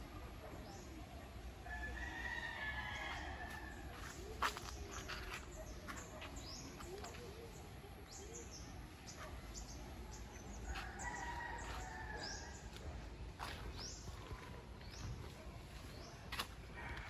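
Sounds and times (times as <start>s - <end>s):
rooster crowing: 10.8s - 12.6s.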